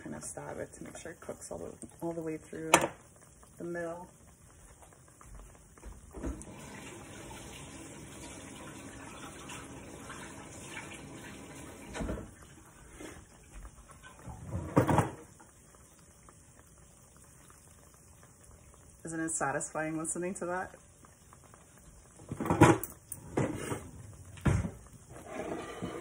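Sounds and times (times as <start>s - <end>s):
dough sizzling in hot oil: 0.0s - 26.0s.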